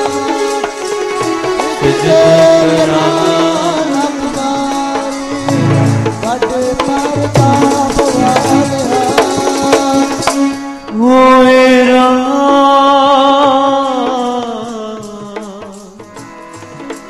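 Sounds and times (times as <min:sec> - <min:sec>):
steady pitched accompaniment: 0:00.0 - 0:12.5
tabla strokes: 0:00.0 - 0:17.0.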